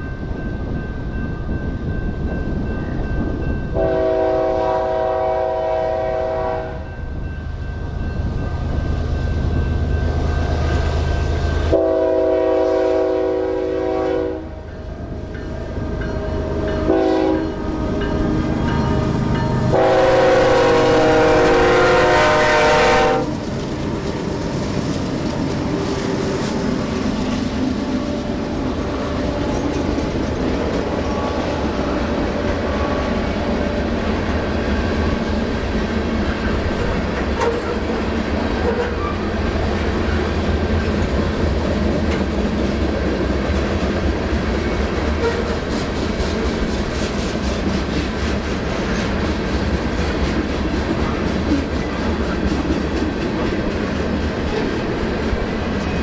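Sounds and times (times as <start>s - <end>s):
freight train rolling past: 0.0s - 56.0s
locomotive air horn: 3.8s - 6.9s, 11.7s - 14.6s, 16.4s - 18.0s, 19.7s - 23.4s, 45.2s - 45.6s.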